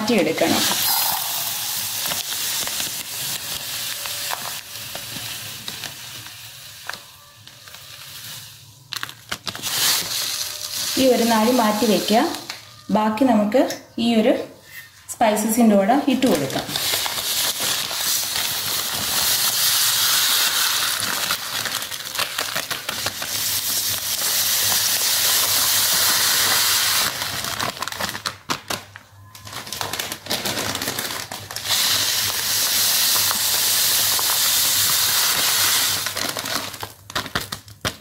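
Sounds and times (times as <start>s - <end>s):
sugar pouring hiss: 0.4s - 12.6s, 16.6s - 27.4s, 31.6s - 36.9s
plastic bag rustling: 0.4s - 12.8s, 16.1s - 38.0s.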